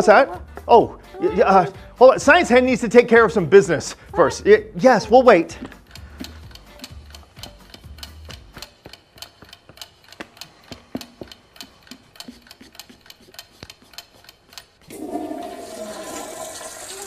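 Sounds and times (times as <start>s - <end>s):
clock ticking quickly: 4.6s - 14.9s.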